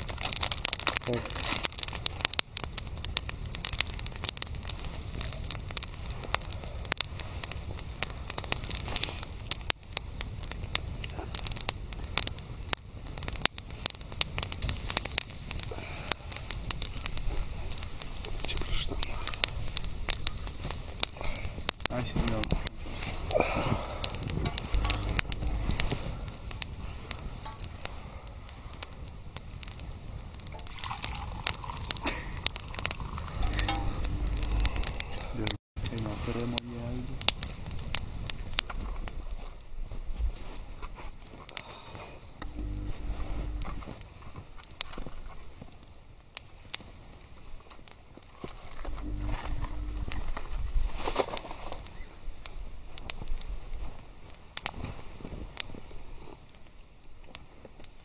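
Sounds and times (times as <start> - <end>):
campfire crackling: 0.0 - 58.0
low rumble: 23.8 - 26.4, 33.1 - 35.5, 42.4 - 43.9, 48.9 - 50.4
tea pouring into a metal mug: 30.5 - 34.0.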